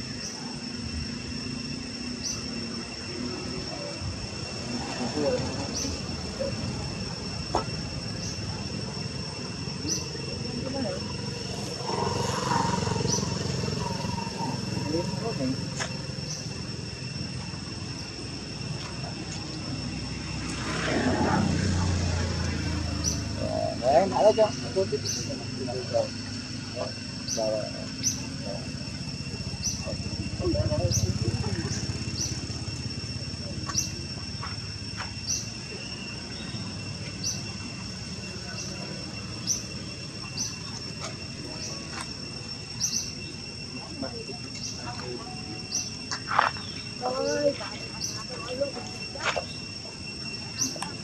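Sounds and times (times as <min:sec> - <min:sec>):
high-pitched whine: 0:00.0 - 0:51.0
insects chirring drone: 0:00.0 - 0:51.0
vehicle engine rumbling: 0:00.0 - 0:51.0.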